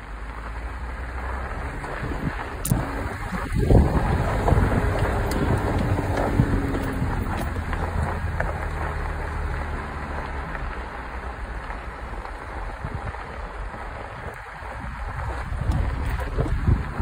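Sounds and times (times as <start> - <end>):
car engine and road rumble: 0.0 - 17.0
wind noise on microphone: 1.4 - 9.5, 12.4 - 17.0.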